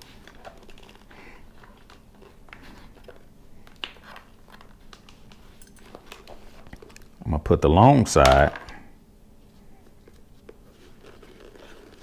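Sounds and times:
faint rustling of padded liner: 9.4s - 12.0s.

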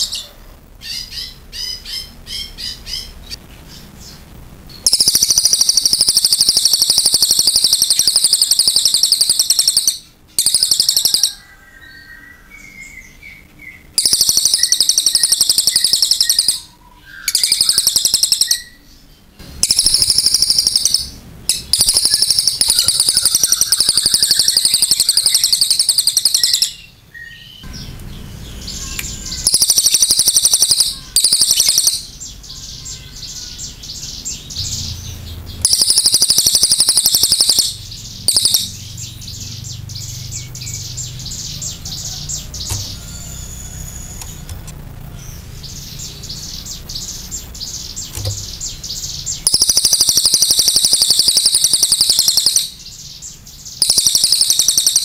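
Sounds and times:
soft bird chattering: 19.6s - 44.5s, 45.2s - 55.0s.

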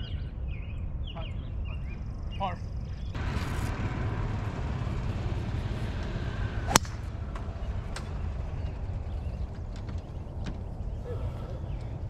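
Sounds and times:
steady low rumble: 0.1s - 12.0s
golf club striking ball: 5.8s - 10.7s.

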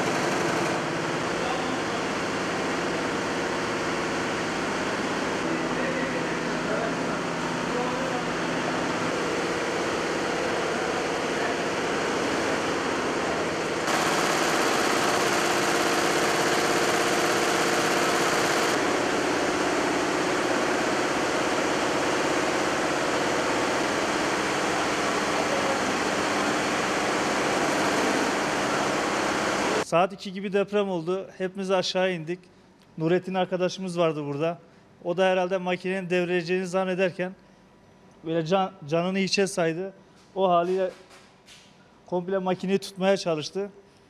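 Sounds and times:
embroidery machines whirring: 0.0s - 29.8s.

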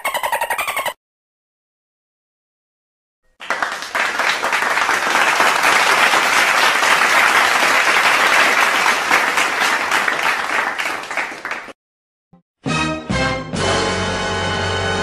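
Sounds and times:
audience applause: 3.4s - 11.8s.

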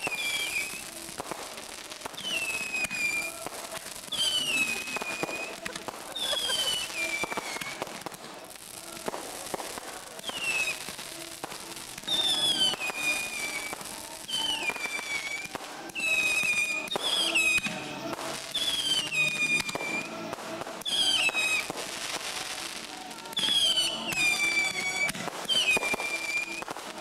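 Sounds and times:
crackling pops: 0.0s - 16.0s
whistling fireworks: 0.0s - 27.0s.

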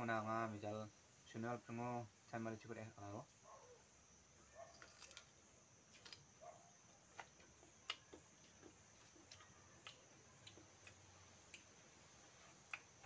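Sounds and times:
people chewing food: 4.5s - 13.0s.

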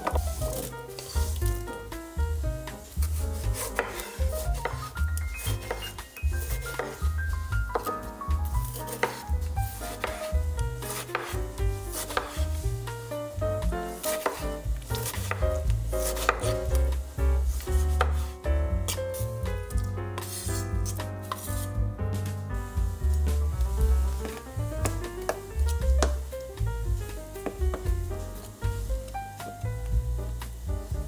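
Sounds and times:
knife cutting tomato on cutting board: 0.0s - 1.7s, 3.0s - 12.6s, 13.6s - 17.0s, 17.6s - 22.3s
light background music: 0.0s - 31.0s
knife slicing onto cutting board: 3.4s - 4.9s, 5.6s - 7.1s, 8.6s - 9.3s, 9.9s - 12.5s, 14.0s - 16.8s.

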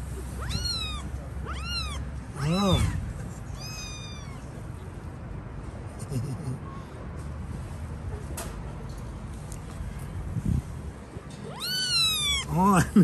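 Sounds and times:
kittens meowing: 0.3s - 4.6s, 11.4s - 12.6s.

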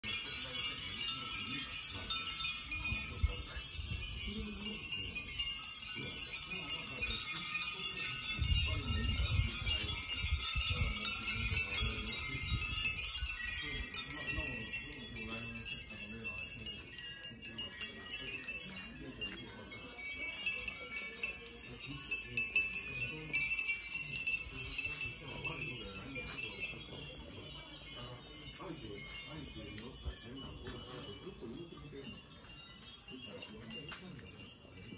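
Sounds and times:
glass wind bells tinkling: 0.0s - 34.9s
wind rumbling on microphone: 8.2s - 14.6s.

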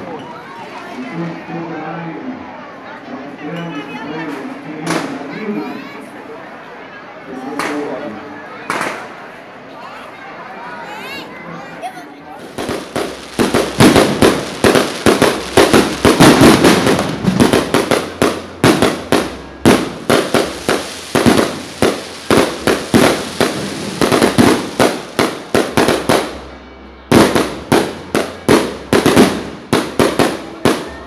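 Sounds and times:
fireworks bangs and crackling: 4.4s - 5.2s, 8.7s - 9.2s, 12.4s - 31.0s.

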